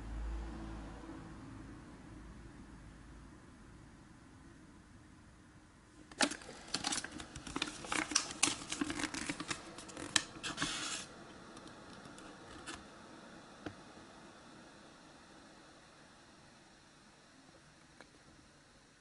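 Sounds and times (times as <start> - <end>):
paper leaflet crinkling: 6.1 - 11.1.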